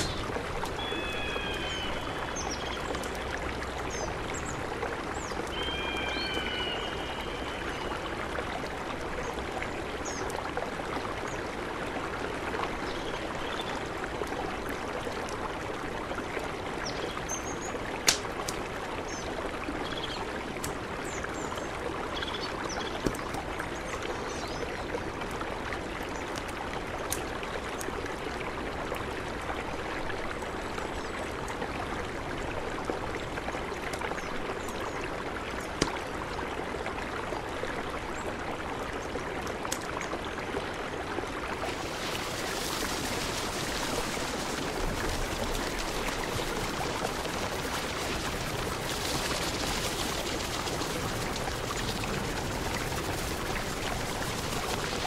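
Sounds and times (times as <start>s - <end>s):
river rushing: 0.0s - 11.1s, 41.2s - 55.0s
campfire crackling pops: 18.0s - 18.7s.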